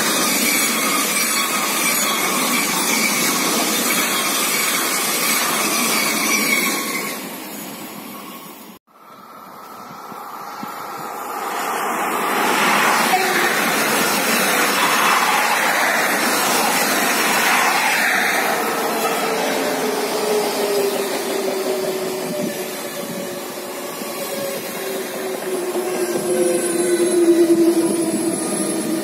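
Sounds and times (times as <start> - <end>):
train wheels rumbling: 9.2 - 29.0.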